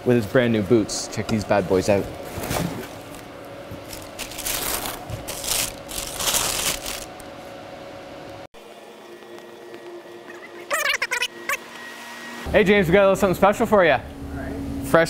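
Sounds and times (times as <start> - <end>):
tissue paper rustling: 3.0 - 7.4.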